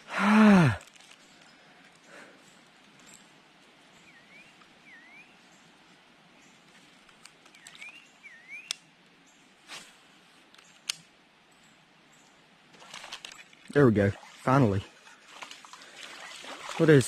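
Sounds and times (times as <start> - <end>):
bird calling: 4.0 - 5.7, 7.5 - 8.9.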